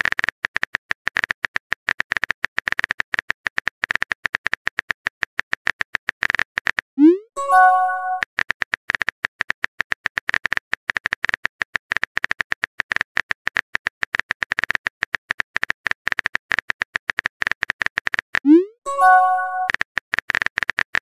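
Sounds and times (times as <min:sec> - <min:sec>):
short chime: 0:07.4 - 0:08.2, 0:18.9 - 0:19.7.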